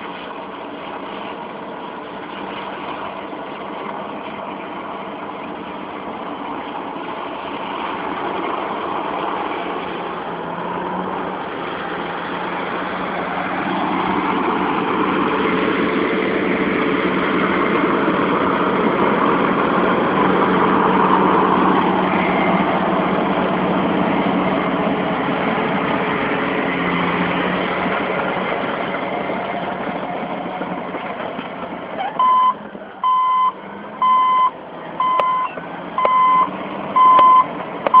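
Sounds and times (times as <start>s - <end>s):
bulldozer diesel engine running: 0.0s - 38.0s
reversing alarm beeping: 32.2s - 38.0s.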